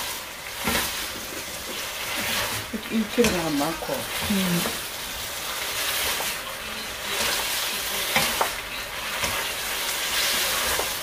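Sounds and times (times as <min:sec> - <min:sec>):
noodles sizzling in a pan: 0:00.0 - 0:11.0
utensils clicking against pan: 0:02.1 - 0:04.9, 0:06.0 - 0:11.0.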